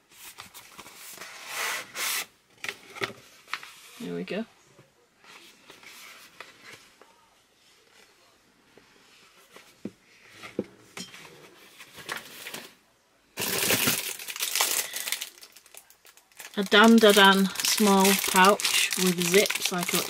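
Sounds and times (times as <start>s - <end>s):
packaging crinkling: 13.4s - 20.0s.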